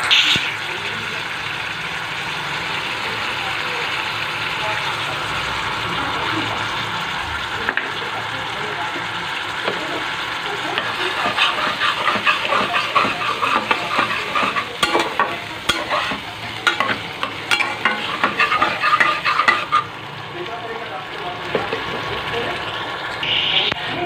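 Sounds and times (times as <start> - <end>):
masala sizzling in oil: 0.0 - 24.0
spatula scraping pan: 10.6 - 20.0.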